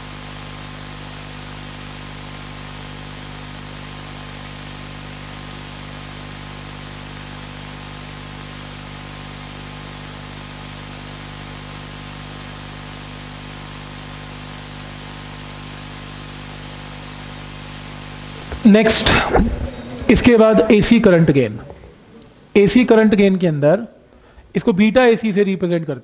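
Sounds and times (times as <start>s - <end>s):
steady hiss: 6.0s - 24.9s
low hum: 18.0s - 23.0s.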